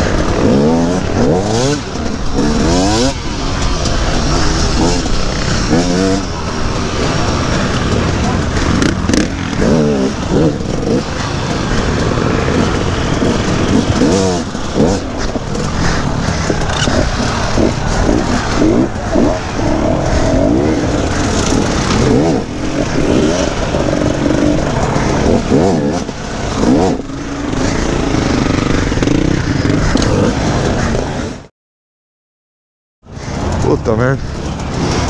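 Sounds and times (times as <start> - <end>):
motorcycle engines revving in blips: 0.0 - 31.5, 33.1 - 35.0.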